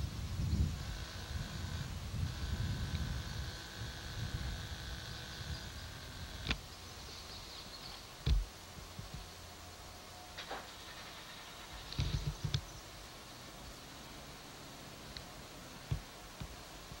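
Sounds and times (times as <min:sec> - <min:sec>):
faint steady high tone: 0:09.9 - 0:10.4.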